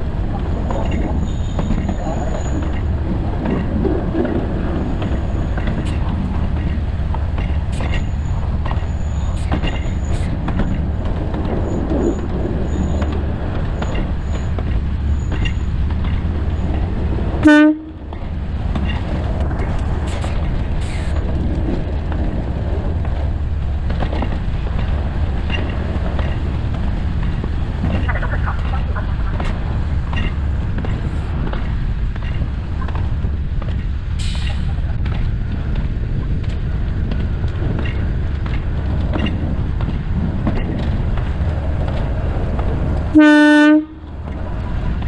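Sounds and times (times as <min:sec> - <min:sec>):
train clicks: 0:00.0 - 0:45.0
train rumbling: 0:00.0 - 0:45.0
train horn toot: 0:17.4 - 0:18.0, 0:43.1 - 0:44.1.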